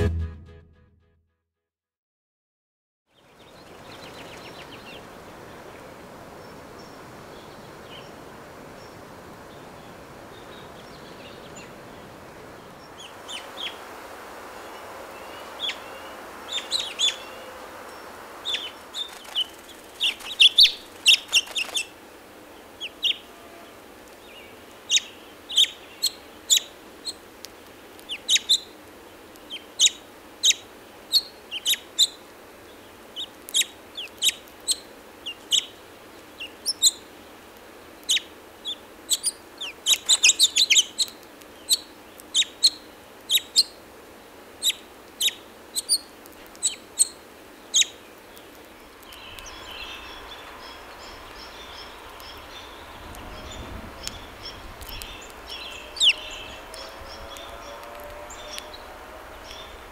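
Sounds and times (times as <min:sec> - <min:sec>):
finch chirping: 0:46.6 - 0:48.0, 0:49.0 - 0:57.5.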